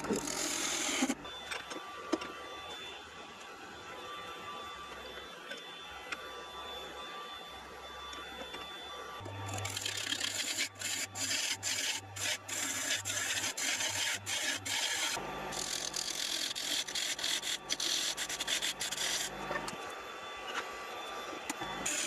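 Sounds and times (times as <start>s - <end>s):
tool cutting wood on lathe: 0.0s - 1.2s, 9.2s - 19.8s, 21.5s - 22.0s
lathe humming: 0.0s - 5.6s, 8.4s - 22.0s.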